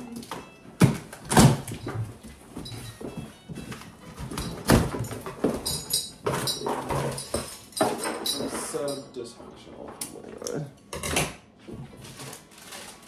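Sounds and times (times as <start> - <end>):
packing material rustling: 12.0 - 13.0.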